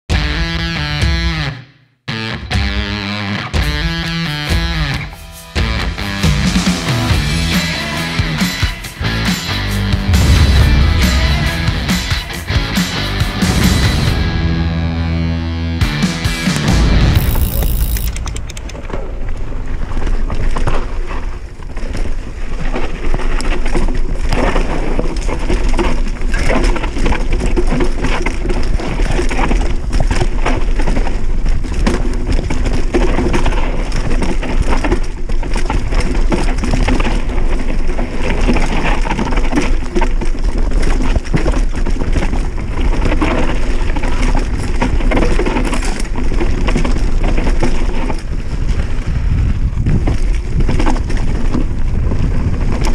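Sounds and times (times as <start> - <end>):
bike rattling and knocking: 16.5 - 52.9
bike tyres crunching over stones: 16.6 - 52.9
wind rumbling on microphone: 17.2 - 52.9.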